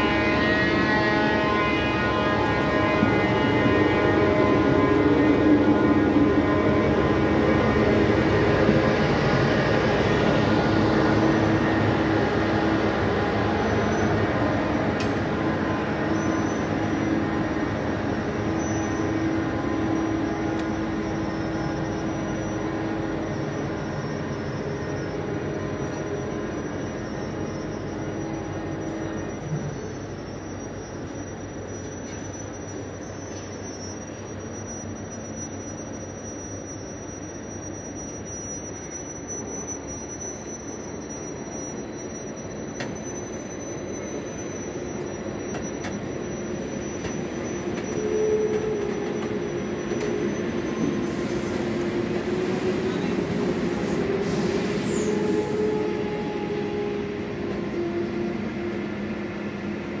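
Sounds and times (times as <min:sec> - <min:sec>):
train coaches rumbling on rails: 0:00.0 - 1:00.0
wheel squeal: 0:13.5 - 0:14.8, 0:15.6 - 0:17.4, 0:18.4 - 0:58.3.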